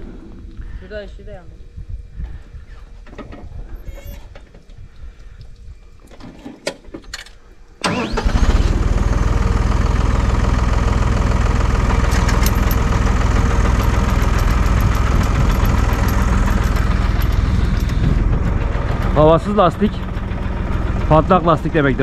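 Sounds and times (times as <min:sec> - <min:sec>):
motor starting with rising whine: 0:07.8 - 0:22.0.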